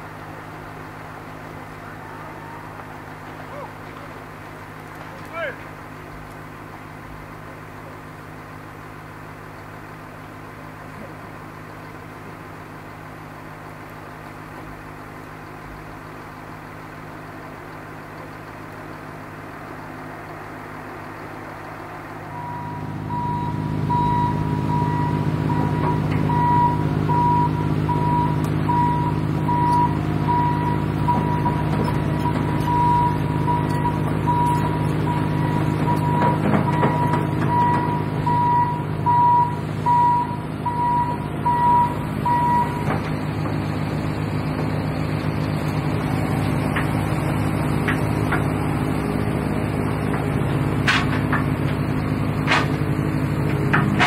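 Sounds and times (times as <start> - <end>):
construction vehicle engine: 0.0 - 54.0
reversing alarm beeping: 22.3 - 42.9.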